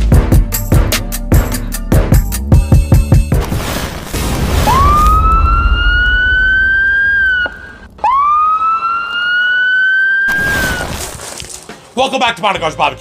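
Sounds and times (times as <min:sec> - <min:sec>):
music beat: 0:00.0 - 0:03.4
siren-like wails: 0:04.6 - 0:10.8.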